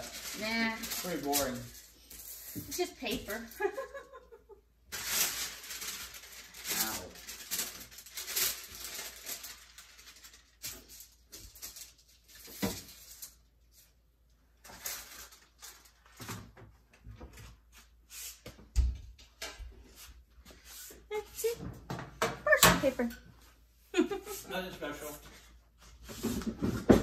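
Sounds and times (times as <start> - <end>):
parchment paper rustling: 0.0 - 4.3, 4.9 - 18.6.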